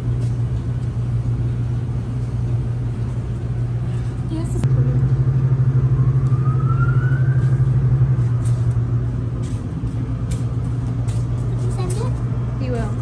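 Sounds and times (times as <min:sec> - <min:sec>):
car wash machinery humming: 0:00.0 - 0:13.0
faint rising whine: 0:04.6 - 0:09.9.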